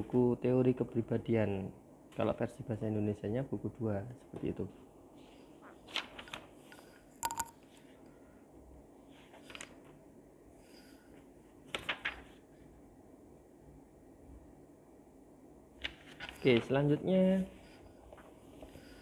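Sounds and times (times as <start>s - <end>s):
paper rustling: 5.7s - 6.7s, 9.2s - 10.0s, 11.7s - 12.4s, 15.8s - 16.8s.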